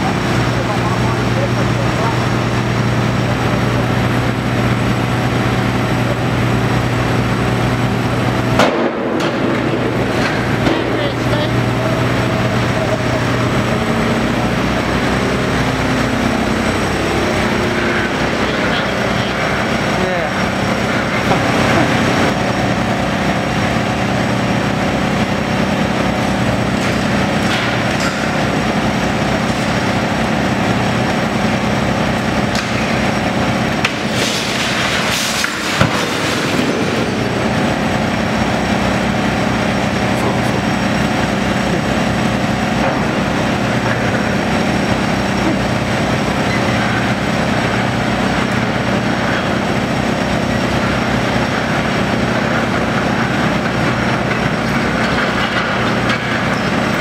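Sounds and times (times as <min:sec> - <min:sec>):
demolition attachment tearing building: 0:00.0 - 0:57.0
excavator diesel engine running: 0:00.0 - 0:57.0
falling debris clatter: 0:32.6 - 0:38.2.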